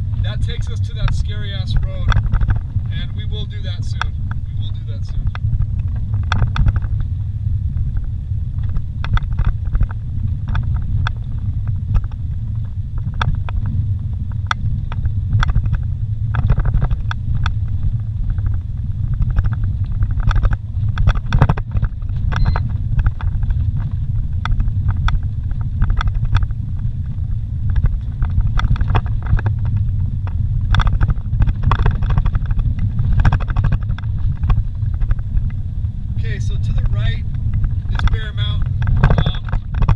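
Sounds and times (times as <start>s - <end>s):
knocks and rattles over bumps: 0.0s - 39.9s
vehicle engine and tyres rumble: 0.0s - 39.9s.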